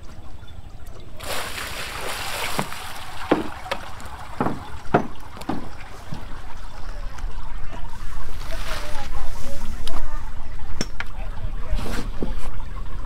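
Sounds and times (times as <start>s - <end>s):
water splashing from a bucket: 1.2s - 9.4s
footsteps on wooden decking: 2.1s - 6.7s
bucket set down with a knock: 2.4s - 6.3s.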